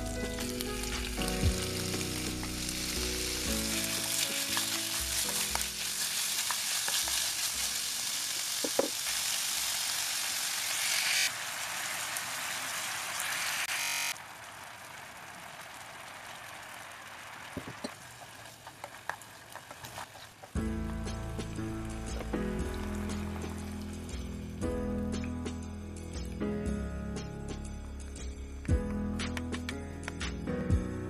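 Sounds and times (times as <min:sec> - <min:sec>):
chicken sizzling in oil: 0:00.0 - 0:24.6
knock on wooden cutting board: 0:08.6 - 0:09.0
sauce bubbling in pan: 0:11.3 - 0:13.4, 0:14.2 - 0:24.5.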